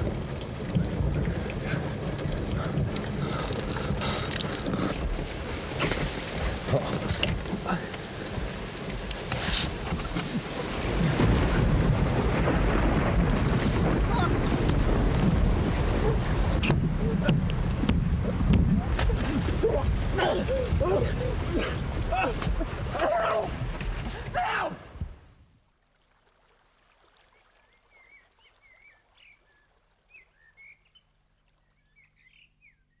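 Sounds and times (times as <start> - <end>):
heavy rain: 0.0 - 25.4
water splashes: 0.0 - 31.7.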